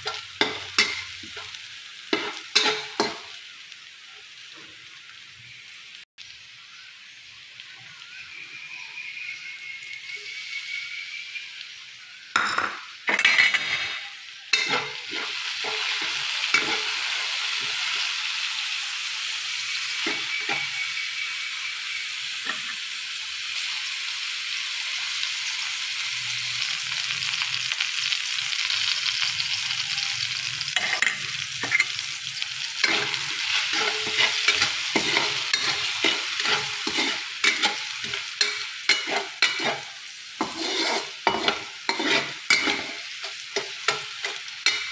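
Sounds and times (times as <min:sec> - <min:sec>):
metal spatula scraping wok: 0:00.0 - 0:03.4, 0:13.1 - 0:18.1, 0:19.7 - 0:21.3, 0:30.2 - 0:44.9
garlic sizzling in hot oil: 0:00.0 - 0:44.9.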